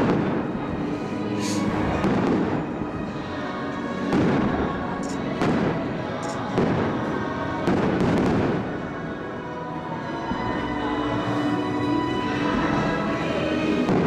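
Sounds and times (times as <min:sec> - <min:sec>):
faint show music: 0:00.0 - 0:14.0
fireworks booming: 0:01.5 - 0:02.8, 0:07.7 - 0:08.8.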